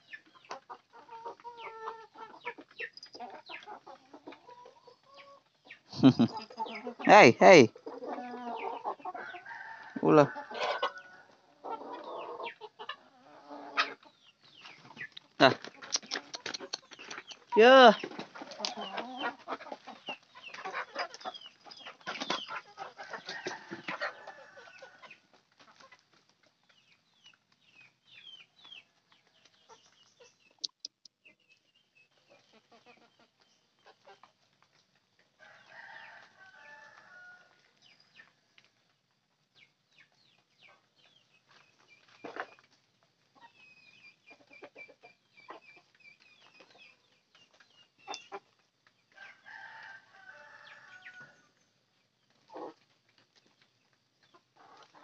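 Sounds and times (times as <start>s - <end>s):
chickens clucking: 0.0s - 55.0s
long drawn-out chicken call: 5.2s - 14.0s, 22.6s - 25.1s, 35.4s - 37.7s, 49.1s - 51.5s.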